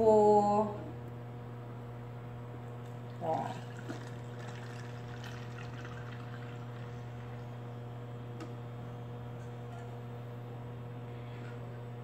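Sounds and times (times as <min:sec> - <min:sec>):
low electrical hum: 0:00.0 - 0:12.0
water trickling into a glass jar: 0:03.2 - 0:07.4.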